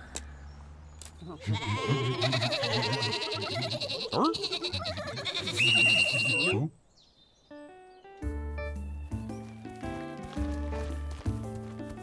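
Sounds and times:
cartoon sheep bleating: 1.3s - 6.6s.

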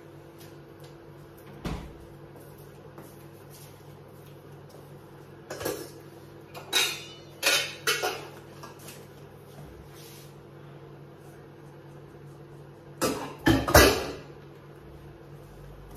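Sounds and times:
metal cooking pots clanking: 5.5s - 8.4s.

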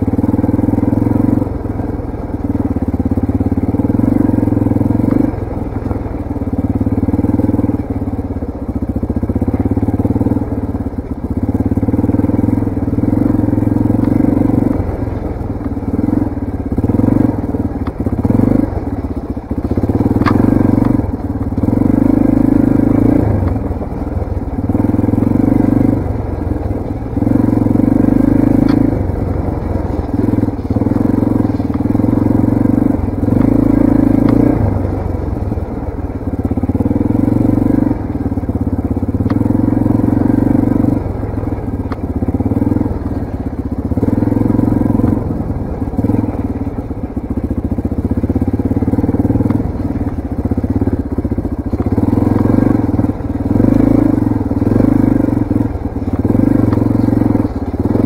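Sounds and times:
motorcycle engine revving: 0.0s - 58.0s
sharp ticks: 19.6s - 21.7s, 28.2s - 32.3s, 39.2s - 39.6s, 41.6s - 43.2s, 49.2s - 58.0s.

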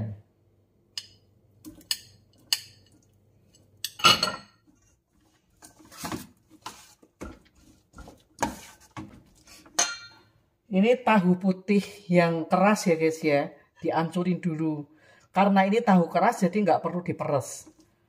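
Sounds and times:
spoon clinking against metal bowl: 1.0s - 4.6s, 9.8s - 10.2s.

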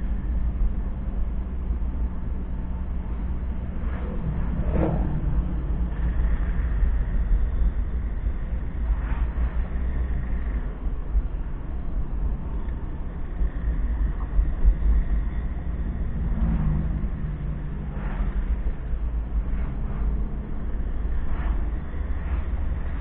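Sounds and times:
car engine running: 0.0s - 23.0s
tyres on asphalt: 0.0s - 23.0s.

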